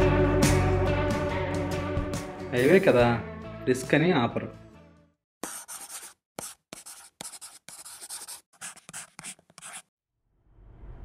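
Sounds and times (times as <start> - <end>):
marker pen scratching on board: 5.4 - 9.9.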